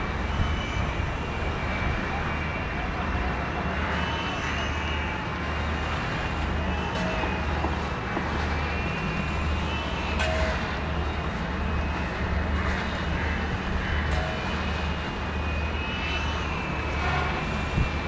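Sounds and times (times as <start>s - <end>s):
city traffic hum: 0.0s - 18.0s.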